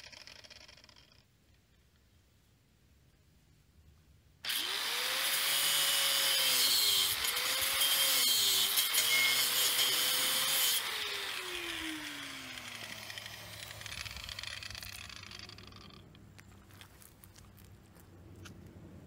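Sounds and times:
angle grinder cutting steel: 4.4s - 16.0s
grinder motor winding down: 4.5s - 6.4s, 8.8s - 16.2s.

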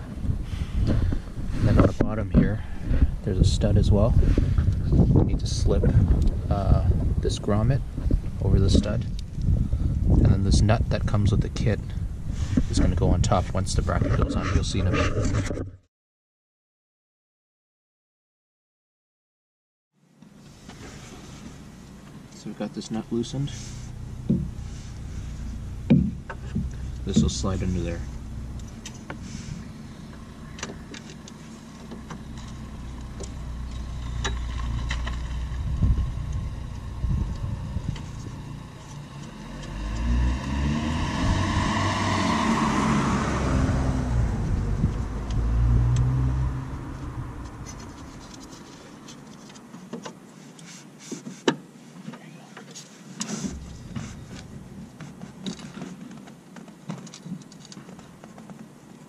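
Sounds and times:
car driving past: 31.5s - 48.2s.

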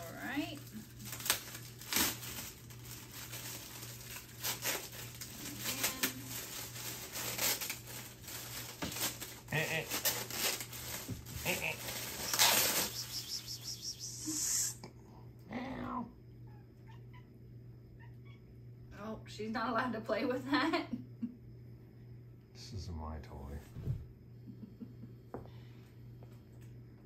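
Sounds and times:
plastic packaging crinkling: 0.0s - 13.8s
cat meowing: 15.7s - 17.4s, 18.0s - 18.5s.

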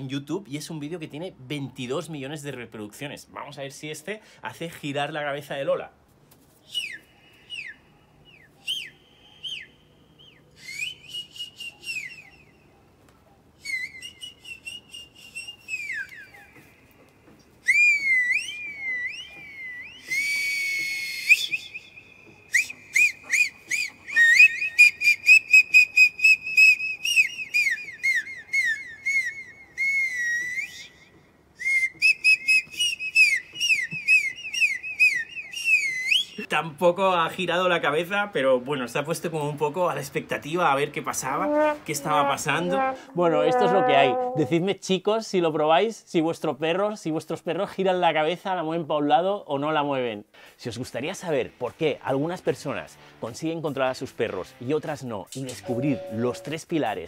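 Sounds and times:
electronic whistles and trills: 17.6s - 36.5s, 55.4s - 56.7s.

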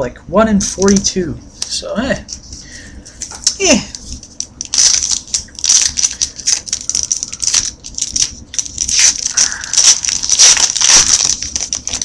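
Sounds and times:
foil wrapper crinkling and tearing: 3.2s - 12.0s.

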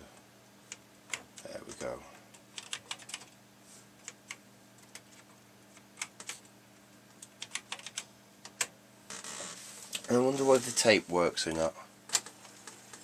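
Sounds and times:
keyboard keys being typed: 2.5s - 3.4s, 7.2s - 8.7s.

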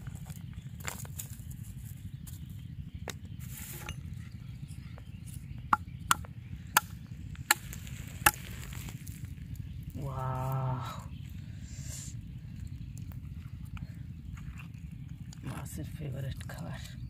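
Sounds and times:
steady low rumble: 0.0s - 17.0s
pole knocking snails on brick: 5.6s - 8.7s.

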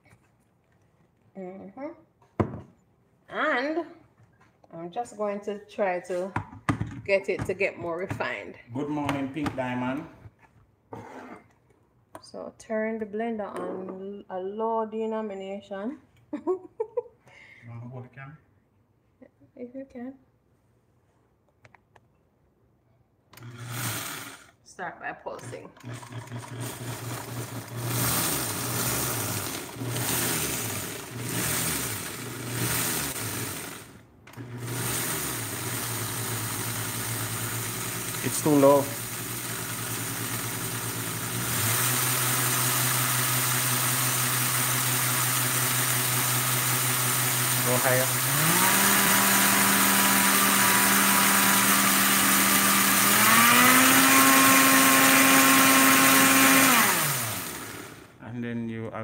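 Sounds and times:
blender motor grinding grain: 23.4s - 24.6s, 25.4s - 58.2s.

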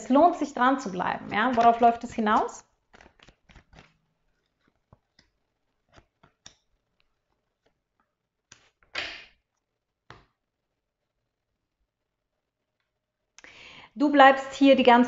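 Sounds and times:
cards rustling: 1.3s - 8.9s.

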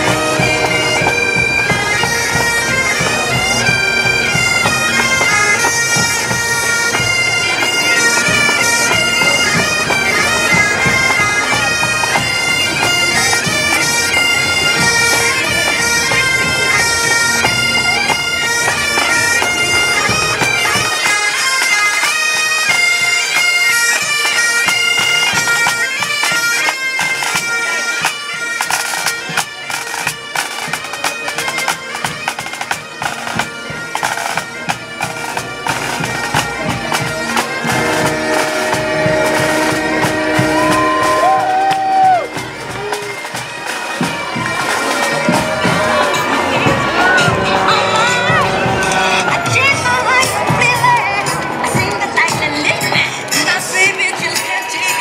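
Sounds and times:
bagpipes and drums march: 0.0s - 55.0s
sharp drum beats: 44.0s - 55.0s.

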